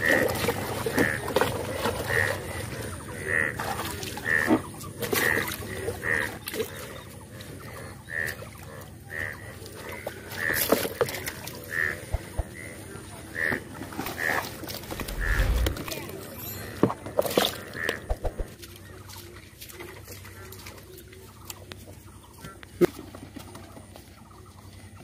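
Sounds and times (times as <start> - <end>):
splashing in shallow water: 0.0 - 24.1.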